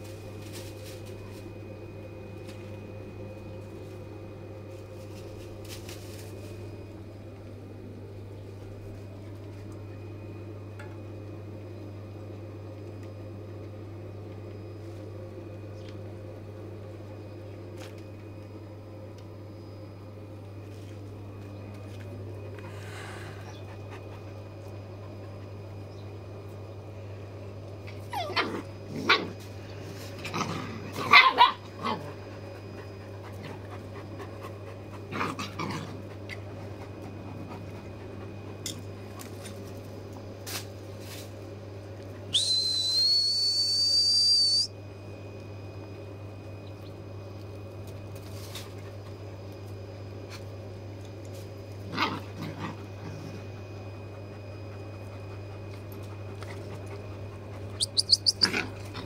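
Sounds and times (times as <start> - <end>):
constant low hum: 0.0 - 59.0
steady high whistle: 42.3 - 44.8
puppies yelping and barking: 57.3 - 59.0.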